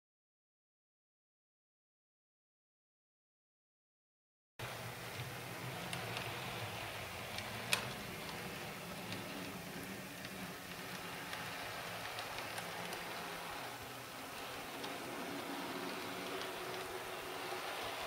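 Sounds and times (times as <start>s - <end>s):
model train motor hum: 4.6s - 18.0s
wheels clicking on rails: 4.6s - 18.0s.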